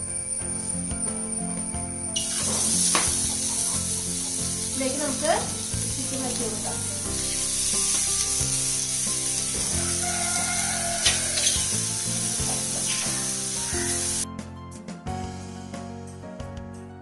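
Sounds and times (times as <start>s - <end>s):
background music: 0.0s - 17.0s
chicken sizzling in a pan: 2.1s - 14.2s.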